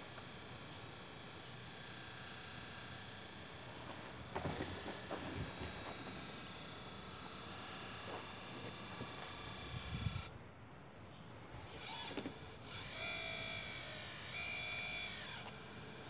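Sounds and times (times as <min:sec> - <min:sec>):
electric pump whining: 0:00.0 - 0:16.0
held tones changing pitch: 0:03.6 - 0:16.0.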